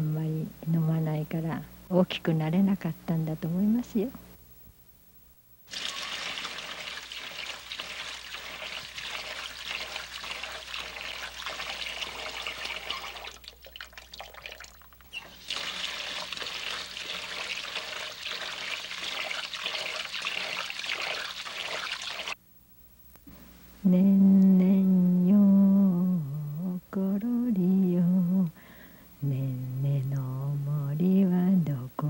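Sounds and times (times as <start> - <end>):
water running from tap into sink: 5.7 - 22.4.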